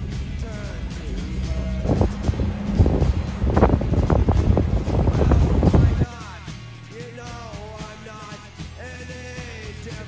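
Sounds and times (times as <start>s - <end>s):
music playing: 0.0s - 10.0s
wind buffeting the microphone: 1.4s - 6.1s.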